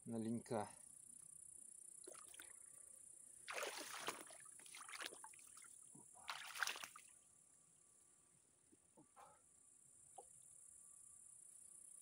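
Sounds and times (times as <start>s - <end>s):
water splashing and sloshing: 3.5s - 7.1s.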